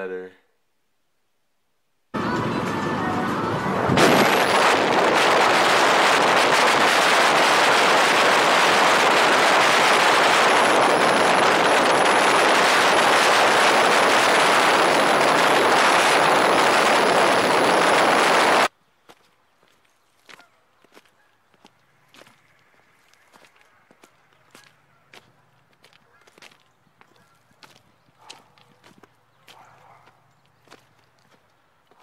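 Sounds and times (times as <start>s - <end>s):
road noise: 2.1s - 19.6s, 21.5s - 32.0s
wind rushing over microphone: 2.2s - 18.7s.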